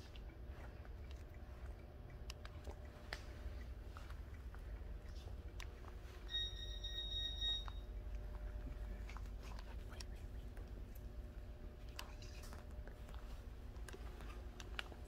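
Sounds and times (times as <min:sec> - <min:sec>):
steady electronic beep: 0:06.3 - 0:07.9.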